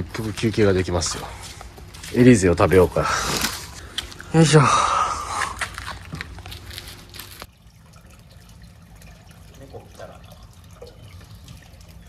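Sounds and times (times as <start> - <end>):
rainwater dripping and trickling: 5.4 - 12.0.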